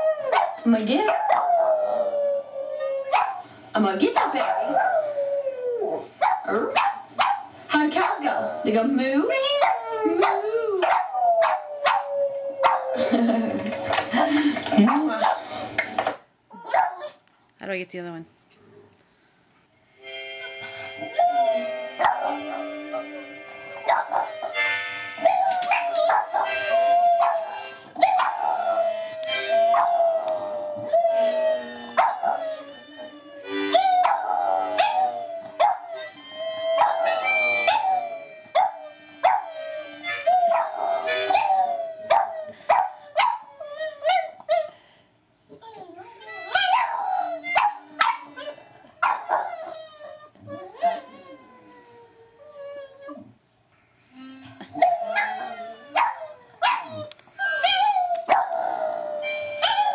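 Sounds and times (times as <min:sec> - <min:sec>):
dog howling and yipping: 0:00.0 - 0:03.4, 0:08.0 - 0:14.4, 0:21.1 - 0:23.2, 0:23.8 - 0:44.7, 0:45.7 - 0:53.3, 0:54.8 - 0:59.9
dogs howling on tv: 0:00.0 - 0:03.4, 0:04.0 - 0:14.4, 0:21.1 - 0:44.4, 0:46.2 - 0:53.3, 0:54.8 - 0:59.9.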